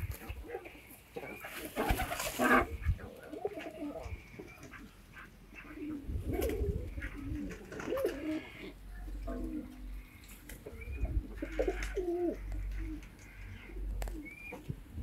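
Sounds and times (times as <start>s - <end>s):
pigeons cooing: 0.0s - 15.0s
wings flapping: 1.4s - 2.7s, 6.3s - 8.4s.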